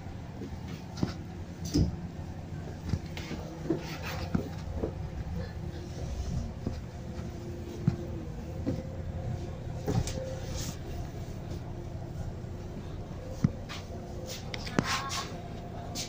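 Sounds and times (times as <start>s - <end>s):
bus diesel engine drone: 0.0s - 16.0s.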